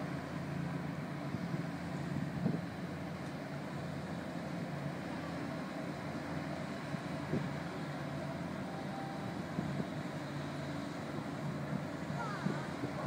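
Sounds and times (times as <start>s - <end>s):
ferry engines droning: 0.0s - 13.0s.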